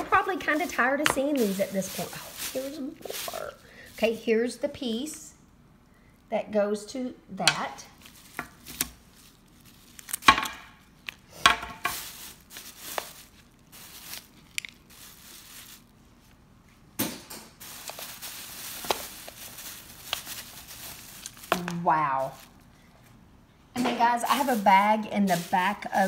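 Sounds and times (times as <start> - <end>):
plastic bag crinkling: 0.0 - 4.5, 7.8 - 16.4, 17.6 - 22.9, 24.1 - 26.0.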